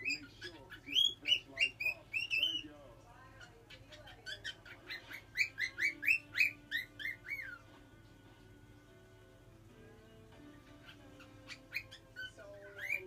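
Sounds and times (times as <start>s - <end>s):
cockatiel whistling chirps: 0.0s - 2.6s, 4.2s - 7.7s, 10.7s - 13.0s.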